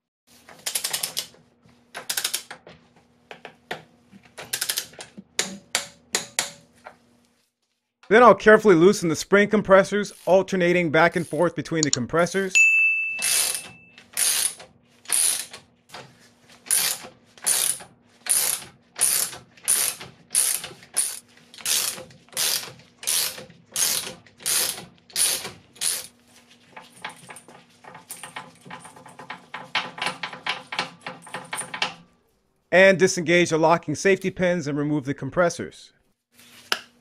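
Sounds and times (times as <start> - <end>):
ratchet wrench clicking: 0.6 - 1.3, 2.0 - 2.5, 4.5 - 5.0, 13.2 - 15.5, 16.7 - 26.1.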